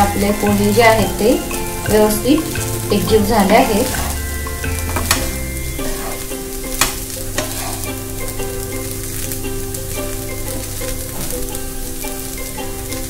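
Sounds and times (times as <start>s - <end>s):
rice sizzling in a pan: 0.0s - 13.0s
spatula scraping a pan: 3.9s - 8.4s.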